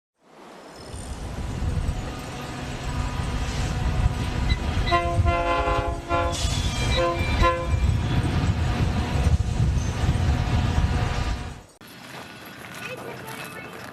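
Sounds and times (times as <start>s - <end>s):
low rumble of moving train: 0.3s - 13.9s
train air horn blasts: 4.7s - 7.8s.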